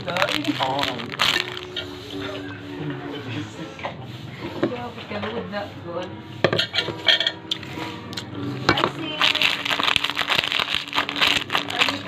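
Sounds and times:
voices: 0.0 - 6.4
background music: 0.0 - 12.0
cutlery clinking on a plate: 6.4 - 7.6.

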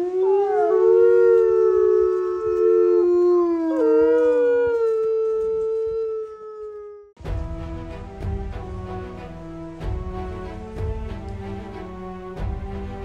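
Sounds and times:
wolves howling: 0.0 - 7.2.

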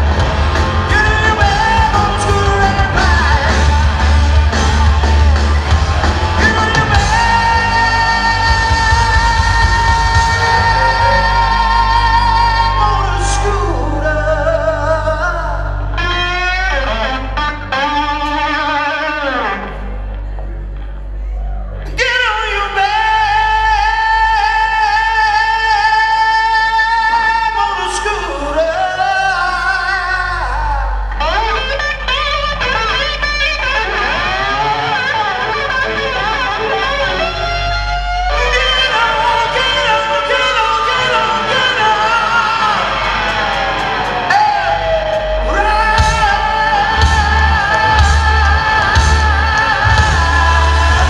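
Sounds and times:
rock band playing: 0.0 - 21.0, 21.8 - 51.0
man singing a long high note: 0.8 - 4.0, 6.3 - 15.8, 44.3 - 51.0.

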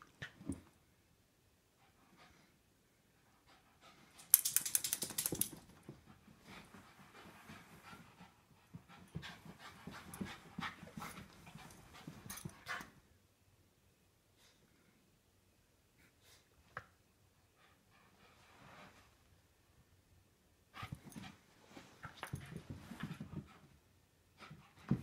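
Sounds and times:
dog panting: 6.0 - 13.0.

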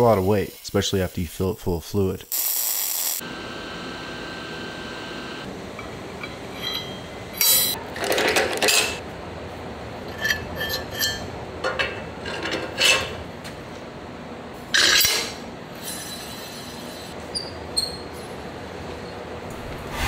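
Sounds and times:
steel parts clanking: 5.7 - 9.0.

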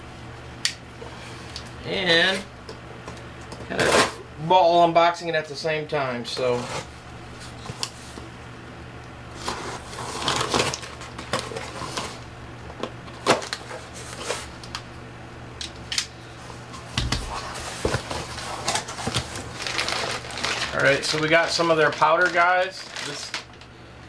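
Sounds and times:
steady low hum: 0.0 - 24.0
cardboard scraping and rustling: 9.3 - 12.2, 17.1 - 23.2.

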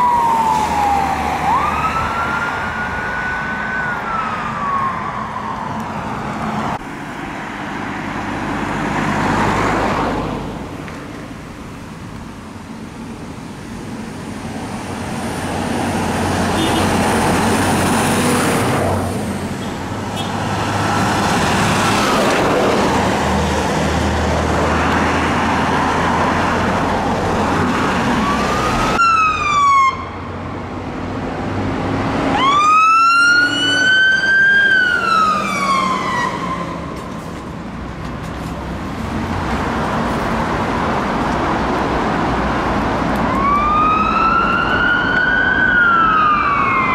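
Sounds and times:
emergency wail siren: 0.0 - 6.7, 20.0 - 30.5, 32.2 - 37.2, 43.0 - 46.9
truck diesel engine passing: 14.0 - 29.4.

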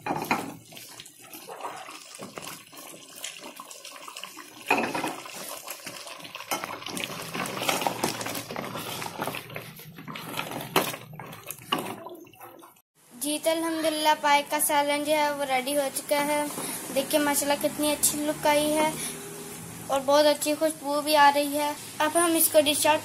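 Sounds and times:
spoon stirring thick curry: 5.3 - 12.6.

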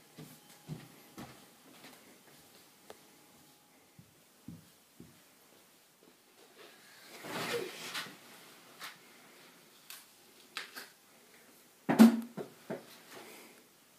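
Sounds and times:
bedding rustling: 7.1 - 9.6.

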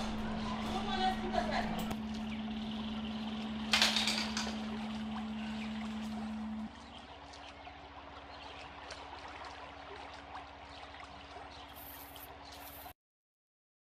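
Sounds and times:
low musical drone: 0.0 - 12.8
water trickling and splashing: 0.0 - 12.9
water drips: 1.8 - 12.9.

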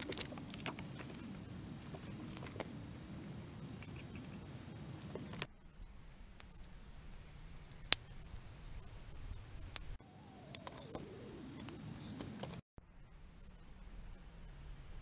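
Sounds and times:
campfire crackling: 0.0 - 12.6
pulsing insect drone: 5.6 - 12.1, 12.8 - 15.0.

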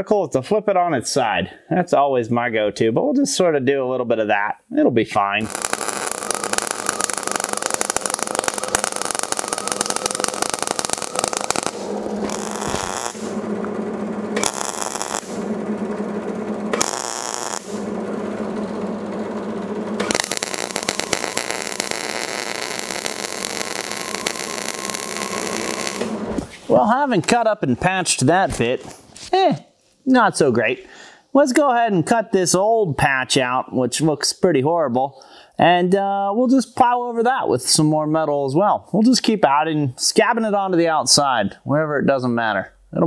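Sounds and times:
welding arc crackling: 5.4 - 26.9.

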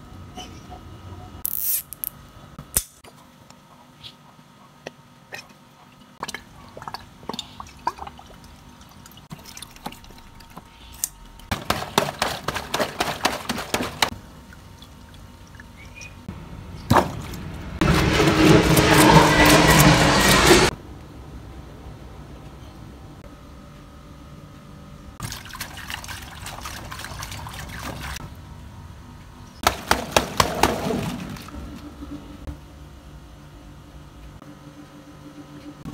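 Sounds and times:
water sloshing in rubber toy: 25.2 - 28.2.

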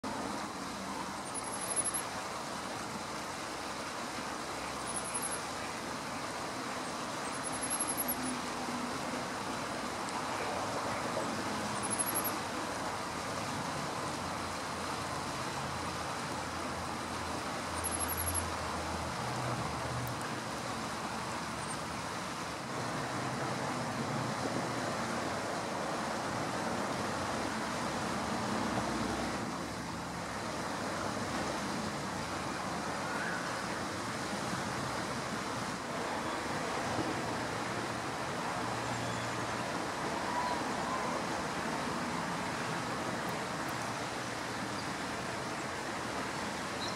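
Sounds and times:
distant road traffic hum: 0.0 - 46.9
faint high-pitched chirps: 11.8 - 12.4.

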